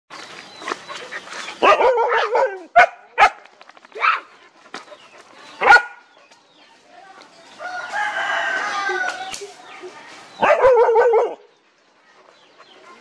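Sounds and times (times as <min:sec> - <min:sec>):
dog barking: 0:01.6 - 0:03.4, 0:05.6 - 0:06.0, 0:10.4 - 0:11.5.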